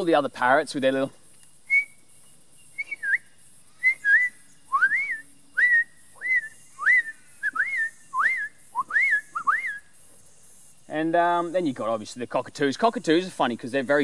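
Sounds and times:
person whistling chirps: 1.7 - 2.0, 2.7 - 9.9.

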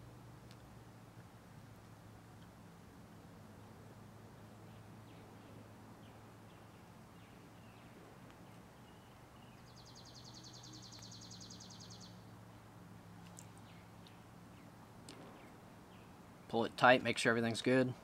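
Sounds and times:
faint low hum: 0.0 - 18.0
thin bird chirps: 4.7 - 12.3.

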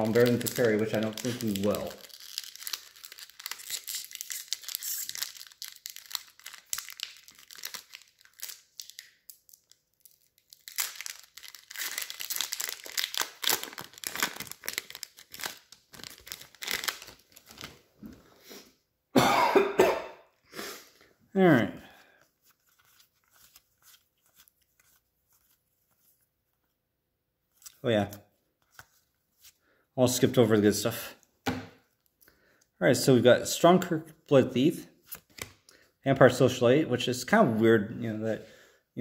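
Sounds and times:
wrapper crinkling and tearing: 0.0 - 17.9, 22.0 - 26.2.

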